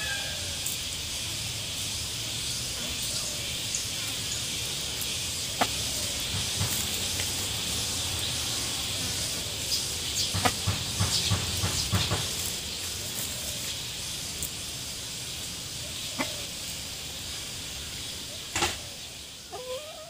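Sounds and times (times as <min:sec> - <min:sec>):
steady high hiss: 0:00.0 - 0:20.0
chicken scratching in dry leaves: 0:11.4 - 0:14.6.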